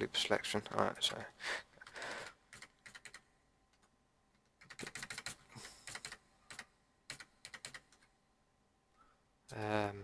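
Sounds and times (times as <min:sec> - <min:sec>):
keyboard keys clicking: 0:02.5 - 0:08.1.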